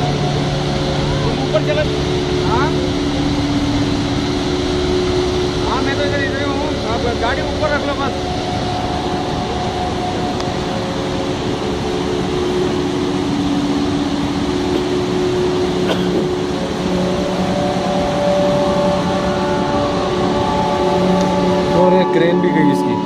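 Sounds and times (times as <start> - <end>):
river rushing over bridge: 0.0 - 23.0
steady humming tones: 0.0 - 23.0.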